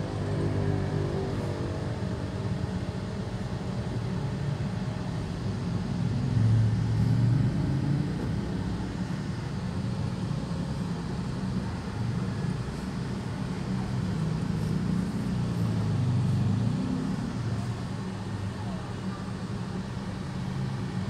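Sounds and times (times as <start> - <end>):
motorcycle traffic: 11.5 - 21.0.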